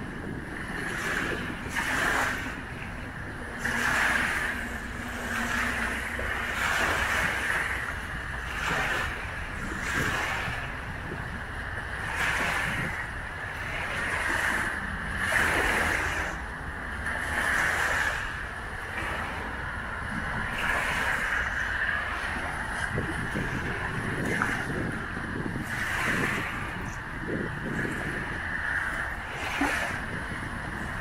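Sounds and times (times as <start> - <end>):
waves breaking on shore: 0.0 - 31.0.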